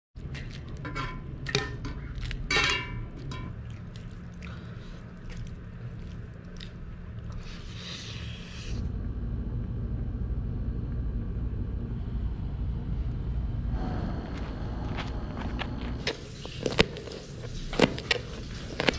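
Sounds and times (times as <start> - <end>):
steady low rumble: 0.2 - 18.9
utensil clinking on metal bowl: 0.3 - 4.2.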